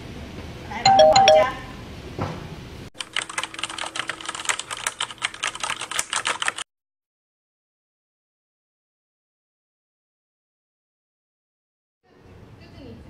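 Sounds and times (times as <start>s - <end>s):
keyboard typing clicks: 3.0s - 6.6s.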